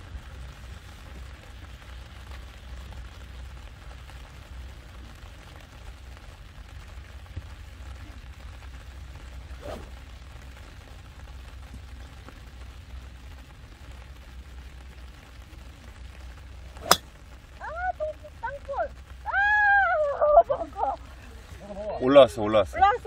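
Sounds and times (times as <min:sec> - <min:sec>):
golf club striking ball: 0:16.8 - 0:17.2.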